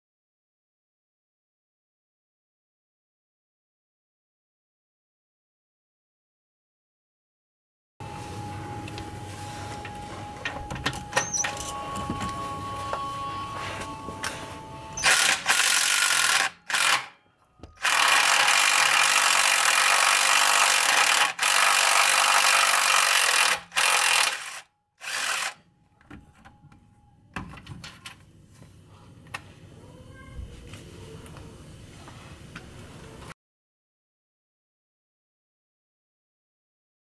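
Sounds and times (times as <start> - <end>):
cordless impact wrench: 15.0 - 17.1, 17.8 - 25.6.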